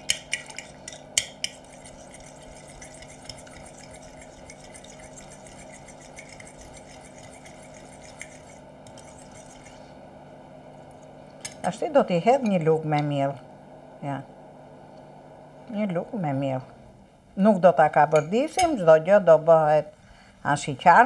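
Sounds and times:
forks scraping ceramic bowl: 0.0 - 9.9.

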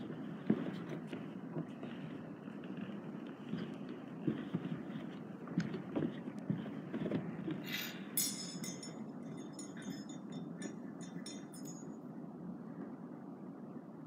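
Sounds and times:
low background hum: 0.0 - 14.0
small hard objects clinking: 8.2 - 11.8.

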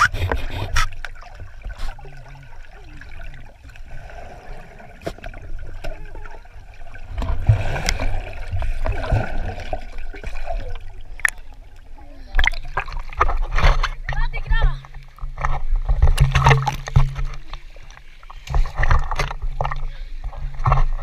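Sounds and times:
water trickling and splashing: 0.0 - 21.0.

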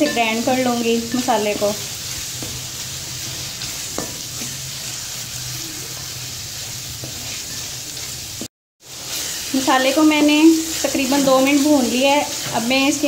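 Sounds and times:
masala sizzling in oil: 0.0 - 13.0
spatula scraping pan: 0.0 - 13.0
spatula knocking pan: 3.3 - 4.5.

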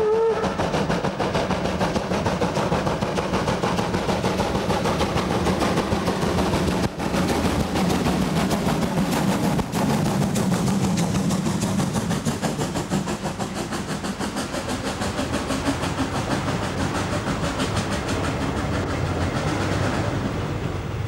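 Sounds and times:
wheels clattering on rails: 0.0 - 20.8
steam locomotive passing: 0.0 - 21.0.

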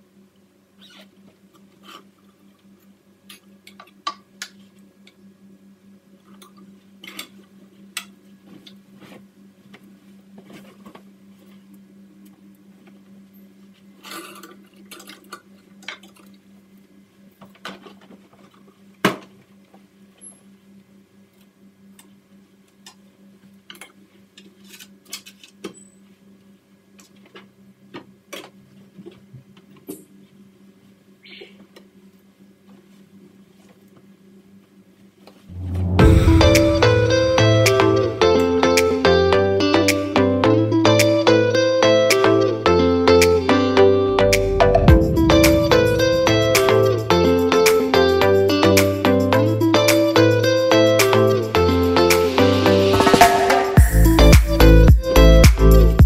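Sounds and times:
steady low hum: 35.5 - 39.4, 43.5 - 47.9.

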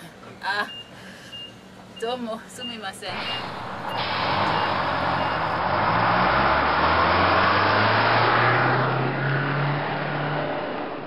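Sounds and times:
road and cabin noise: 0.0 - 11.0
minibus engine accelerating: 3.0 - 11.0.

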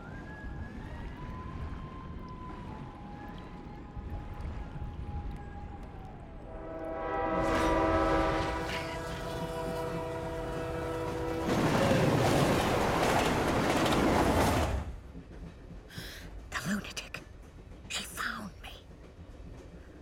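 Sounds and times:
train running rush: 5.5 - 20.0
train horn chord: 6.5 - 12.0.

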